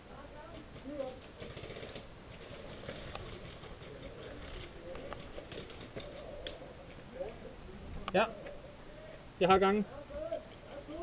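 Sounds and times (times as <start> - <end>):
low background hiss: 0.0 - 11.0
rustling: 0.1 - 8.9.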